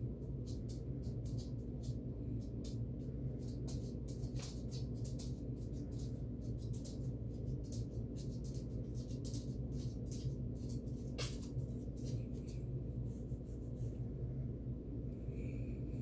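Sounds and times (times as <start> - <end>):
low hum: 0.0 - 16.0
small ticks and clicks: 0.2 - 12.7.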